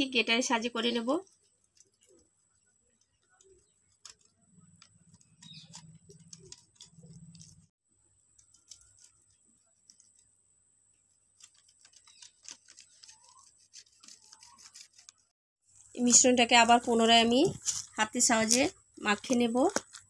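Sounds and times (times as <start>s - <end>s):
egg scraping on metal grater: 1.2s - 7.7s, 11.3s - 15.3s.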